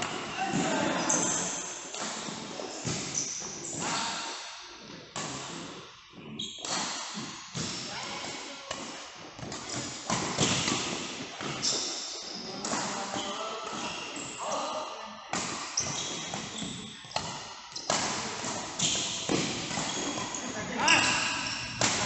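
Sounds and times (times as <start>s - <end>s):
rackets hitting shuttlecock: 6.6s - 7.8s, 8.7s - 11.9s, 15.3s - 22.0s.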